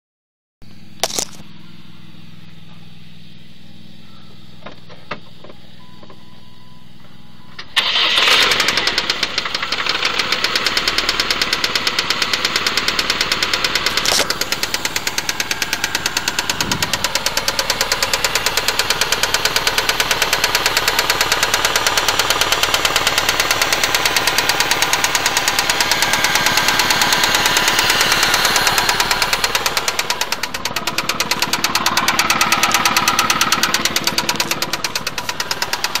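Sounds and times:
car engine starting: 0:00.7 - 0:36.0
engine running with rapid knock: 0:07.8 - 0:36.0.

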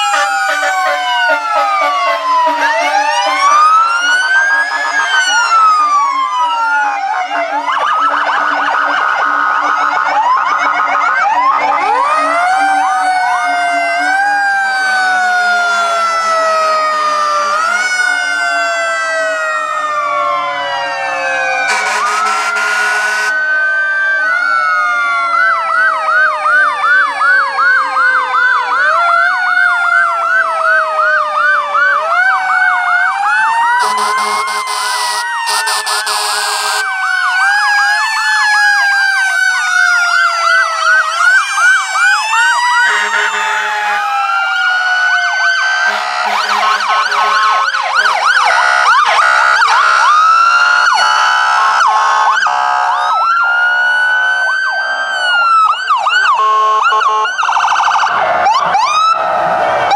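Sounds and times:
horn blasts: 0:00.0 - 0:03.7, 0:21.7 - 0:23.4, 0:33.8 - 0:36.9, 0:42.8 - 0:44.0, 0:45.9 - 0:48.3
emergency sirens wailing and yelping: 0:00.0 - 0:59.9.

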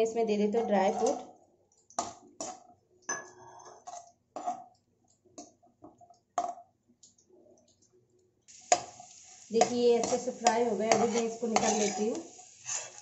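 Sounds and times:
metal skimmer scraping metal pan: 0:10.9 - 0:13.0.

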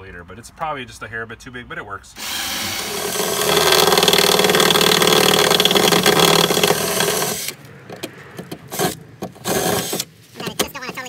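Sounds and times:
cordless drill drilling: 0:02.2 - 0:07.6, 0:08.8 - 0:10.1.

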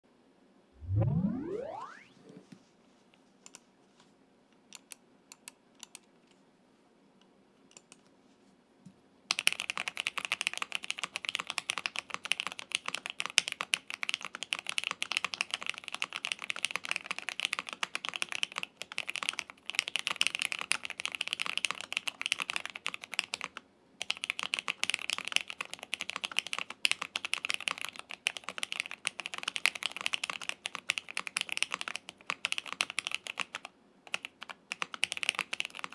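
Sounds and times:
mechanical keyboard typing: 0:09.3 - 0:35.9.

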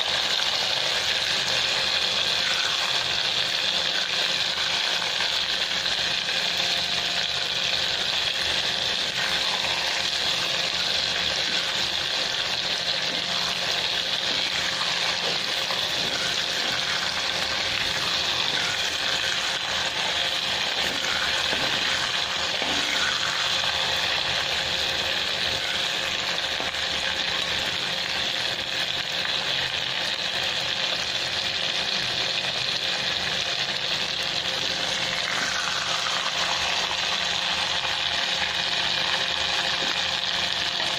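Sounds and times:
oil sizzling: 0:00.0 - 0:40.9
spatula moving through food: 0:08.4 - 0:24.2.

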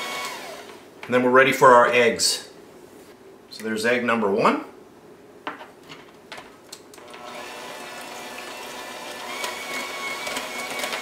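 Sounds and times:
electric hand mixer whisking batter: 0:00.0 - 0:00.8, 0:07.0 - 0:11.0.

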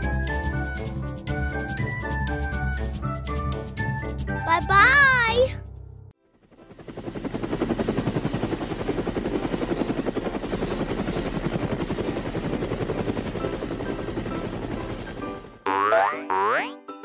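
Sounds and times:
cartoon helicopter rotor chop: 0:06.4 - 0:16.7.

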